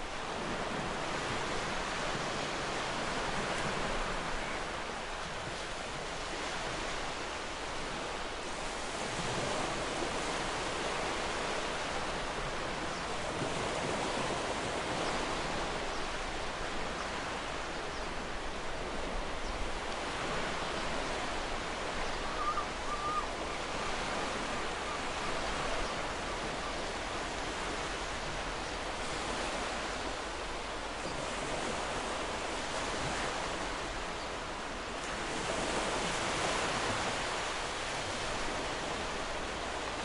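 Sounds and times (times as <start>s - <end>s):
ocean waves washing on shore: 0.0s - 40.0s
faint gull cry: 22.2s - 23.4s.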